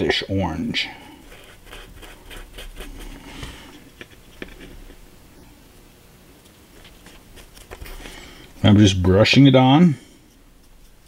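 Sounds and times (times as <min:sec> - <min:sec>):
paintbrush scratchy brushing: 0:01.2 - 0:05.0, 0:06.7 - 0:08.8.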